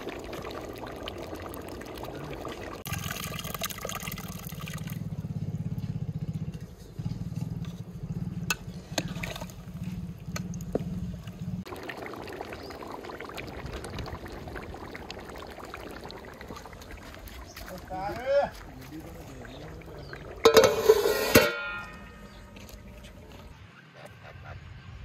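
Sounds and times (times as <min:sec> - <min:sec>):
curry boiling: 0:00.0 - 0:05.7, 0:06.4 - 0:23.5
low fluttering rumble: 0:02.8 - 0:17.5
ladle knocking metal pot: 0:20.4 - 0:22.3.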